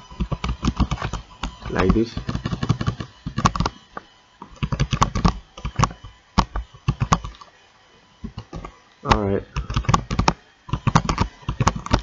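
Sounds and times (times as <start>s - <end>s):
typing on computer keyboard: 0.2s - 3.7s, 4.6s - 7.4s, 9.6s - 12.0s.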